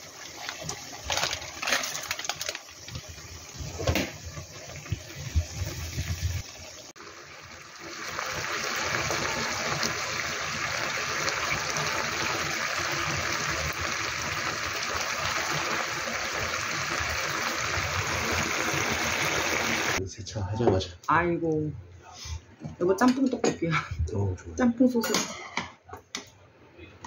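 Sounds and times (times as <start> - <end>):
sauce bubbling in a frying pan: 0.0 - 20.0
sizzling hiss with crackle: 0.0 - 20.0.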